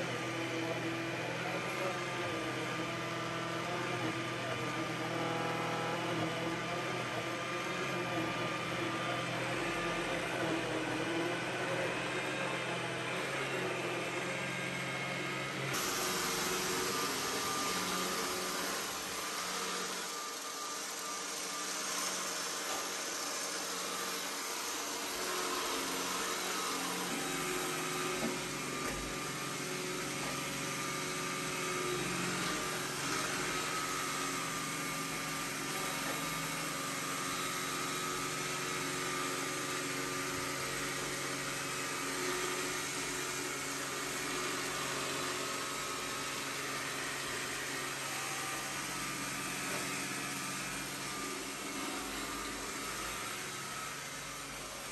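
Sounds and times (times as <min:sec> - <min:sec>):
robot vacuum whirring: 0:14.5 - 0:54.9.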